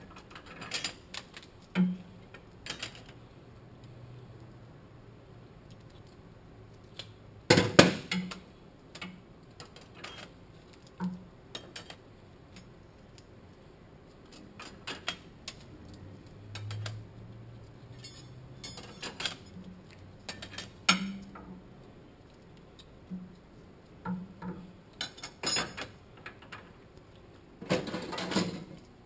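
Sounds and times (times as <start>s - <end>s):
metal plates clinking: 17.9s - 19.6s, 24.1s - 26.7s.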